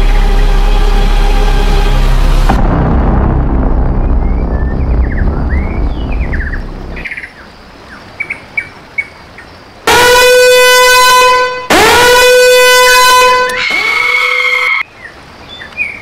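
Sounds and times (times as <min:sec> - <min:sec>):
low rumble: 0:00.0 - 0:07.3
swooping horn blasts: 0:09.9 - 0:14.8.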